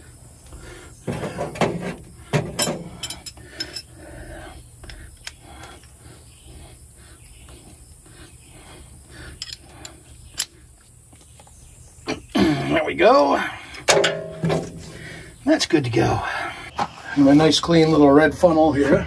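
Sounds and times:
wrench clicking and rasping: 0:09.3 - 0:10.6
sharp metallic knocks: 0:13.9 - 0:14.9.

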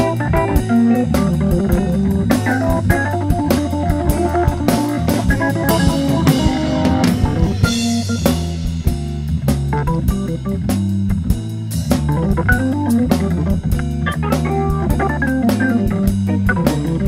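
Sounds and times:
bass guitar: 0:00.0 - 0:17.0
drum kit swinging beat: 0:00.0 - 0:17.0
electric guitar: 0:00.0 - 0:17.0
hammond organ playing: 0:00.0 - 0:17.0.

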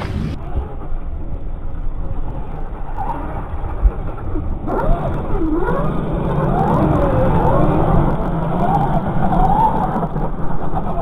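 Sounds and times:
low rumble: 0:00.0 - 0:09.1.

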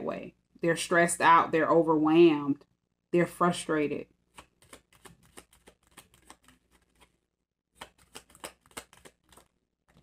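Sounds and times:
cards being shuffled: 0:04.3 - 0:07.2, 0:07.8 - 0:10.0.

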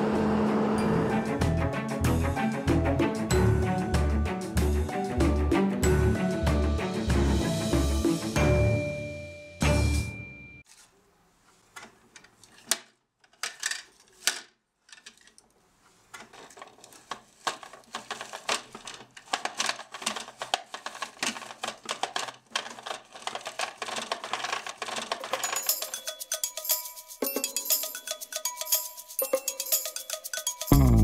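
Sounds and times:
plastic toy parts clicking and rattling: 0:11.8 - 0:31.0.

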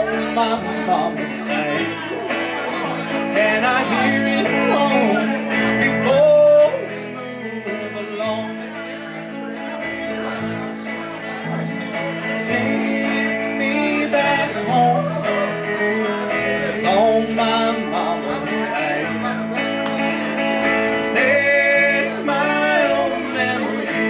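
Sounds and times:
country band playing live: 0:00.0 - 0:24.0.

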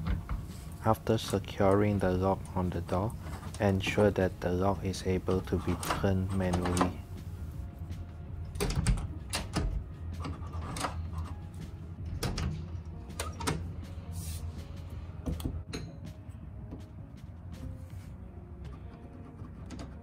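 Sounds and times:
door lock clicks and knocks: 0:08.6 - 0:09.8.

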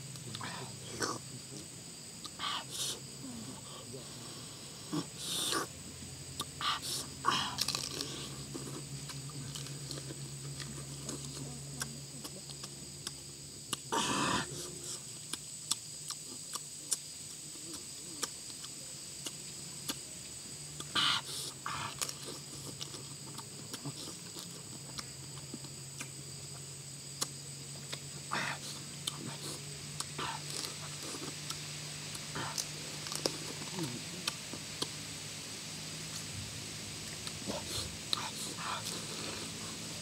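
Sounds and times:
high insect drone: 0:00.0 - 0:40.0
person chewing and sucking: 0:06.4 - 0:20.0, 0:20.8 - 0:26.6, 0:28.6 - 0:35.0.

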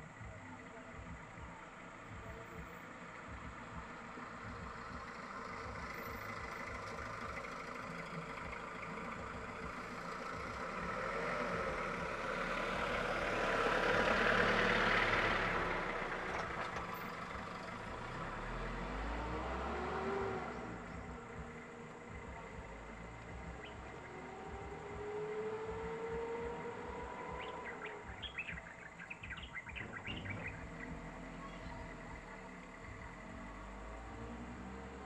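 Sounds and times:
truck engine rumble: 0:00.0 - 0:35.0
vehicle engines on road: 0:00.0 - 0:35.0
vehicle passing close: 0:03.7 - 0:35.0.

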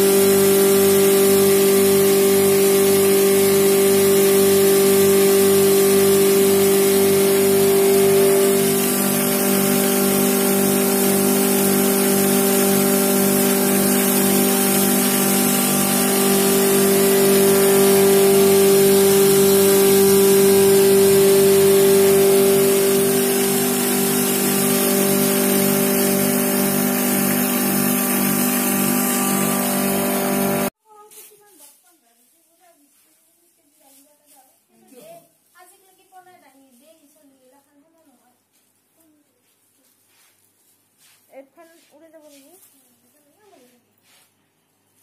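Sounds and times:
grinding mill motor hum: 0:00.0 - 0:30.7.

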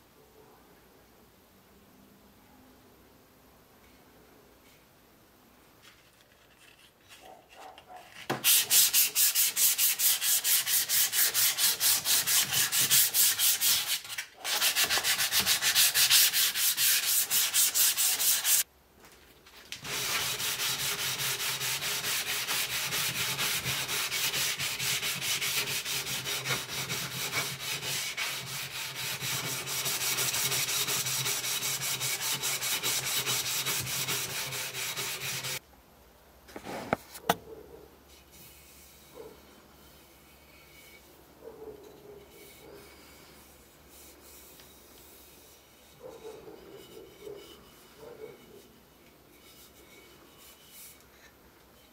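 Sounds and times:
sanding an axe: 0:08.4 - 0:18.6, 0:19.8 - 0:35.6.

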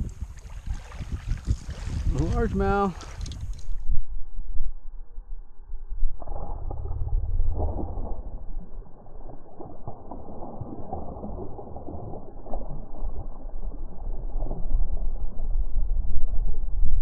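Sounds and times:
water splashing and lapping: 0:00.0 - 0:03.8, 0:07.5 - 0:15.5
wind rumbling on microphone: 0:00.0 - 0:17.0.

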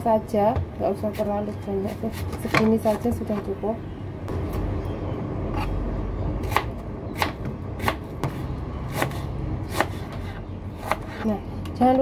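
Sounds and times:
knife chopping onion on board: 0:01.1 - 0:03.1, 0:06.4 - 0:11.2.

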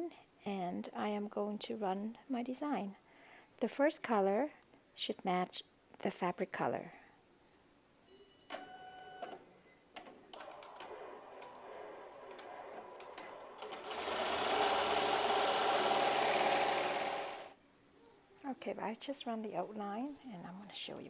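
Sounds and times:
machine clicks: 0:10.0 - 0:17.1
embroidery machine stitching: 0:10.4 - 0:17.6.

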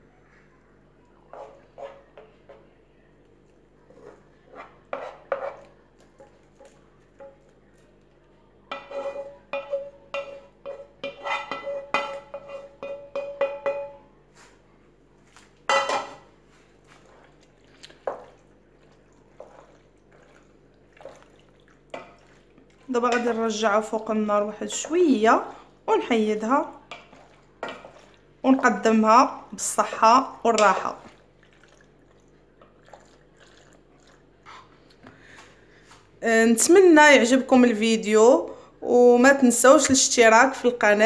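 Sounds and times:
wooden spoon scraping metal pan: 0:01.3 - 0:02.2, 0:03.9 - 0:07.3, 0:08.7 - 0:13.8, 0:19.3 - 0:25.5
spoon and pan knocking pot: 0:08.7 - 0:14.1, 0:15.7 - 0:16.2.

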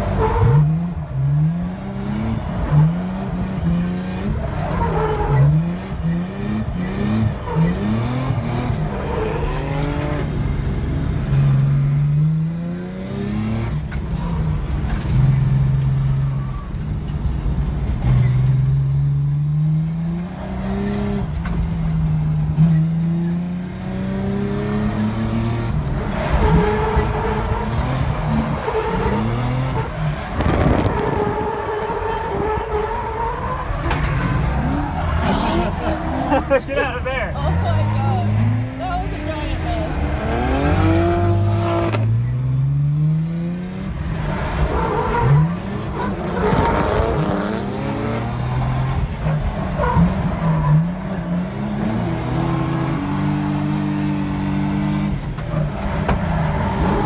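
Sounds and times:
car engine revving hard: 0:39.6 - 0:57.0.

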